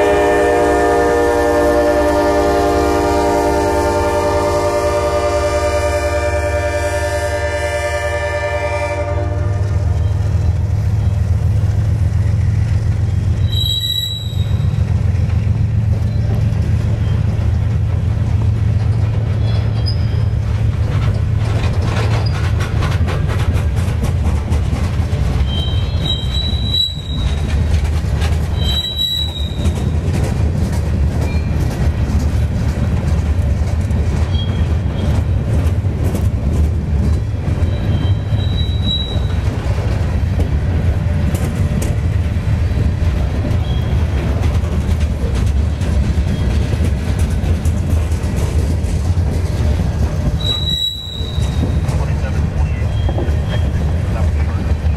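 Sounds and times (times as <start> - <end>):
train wheels rumbling on rails: 0.0 - 54.9
high-pitched wheel squeals: 13.4 - 14.8, 19.4 - 20.4, 25.4 - 27.6, 28.5 - 30.0, 34.3 - 35.2, 37.6 - 39.5, 50.3 - 52.0, 52.6 - 54.0.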